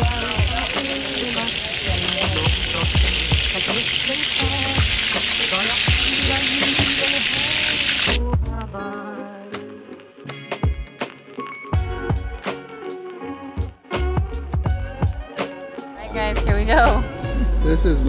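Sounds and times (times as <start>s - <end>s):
fish sizzling in hot oil: 0.0s - 8.2s.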